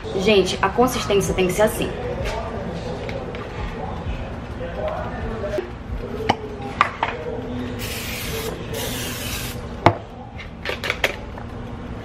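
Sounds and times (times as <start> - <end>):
cooking spray hissing: 7.8 - 9.6.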